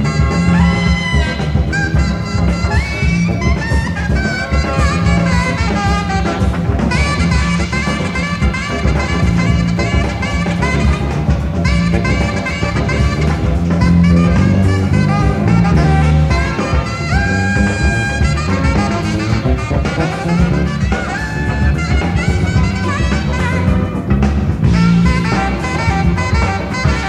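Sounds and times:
drums: 0.0s - 27.0s
electric bass: 0.0s - 27.0s
jazz fusion band: 0.0s - 27.0s
saxophone: 0.0s - 27.0s
trumpet: 0.0s - 27.0s.

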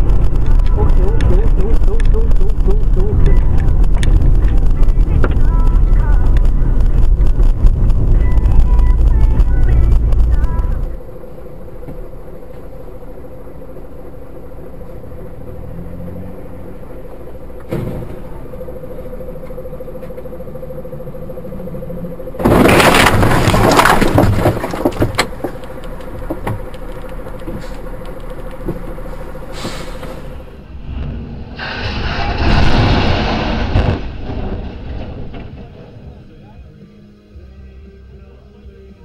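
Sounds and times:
vehicle cabin hum: 0.0s - 39.0s
vehicle crash: 14.4s - 36.8s
clattering and crunching: 22.4s - 29.0s, 31.1s - 36.3s.

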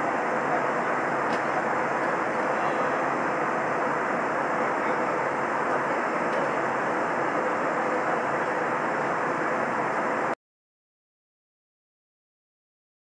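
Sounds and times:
faint steady hum: 0.0s - 10.4s
jet engine cabin noise: 0.0s - 10.4s.

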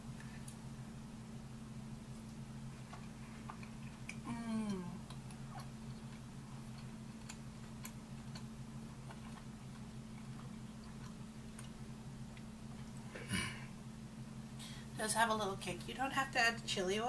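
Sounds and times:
person humming mmm: 4.2s - 5.2s
mouth clicks while chewing: 5.0s - 12.5s.

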